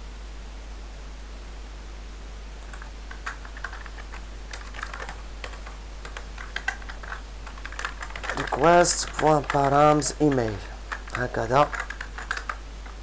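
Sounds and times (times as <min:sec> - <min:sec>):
background hiss: 0:00.0 - 0:13.0
low hum: 0:00.0 - 0:13.0
keyboard typing: 0:02.6 - 0:13.0.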